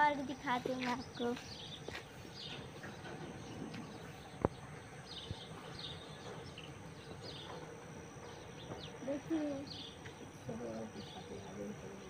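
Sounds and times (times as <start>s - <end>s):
small birds chirping: 0.1s - 12.0s.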